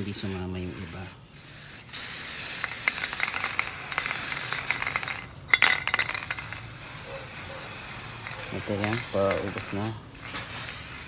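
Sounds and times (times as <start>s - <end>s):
aerosol can spraying hiss: 0.7s - 5.2s, 6.3s - 11.0s.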